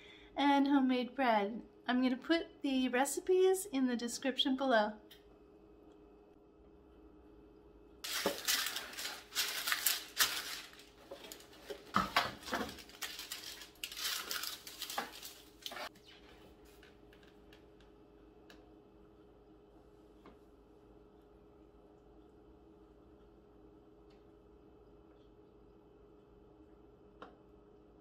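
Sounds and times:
paper rustling and crinkling: 8.0 - 15.9
paper tearing: 8.1 - 15.9.

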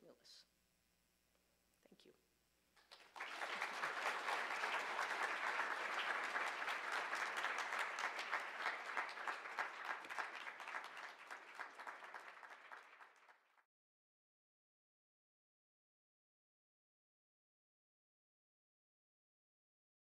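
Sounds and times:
audience applauding: 2.8 - 13.6.

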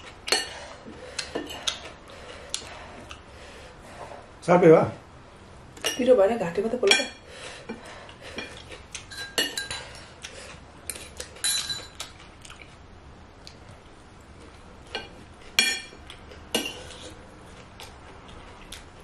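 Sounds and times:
metal spoons clinking on ceramic: 8.4 - 10.0, 10.9 - 12.0.

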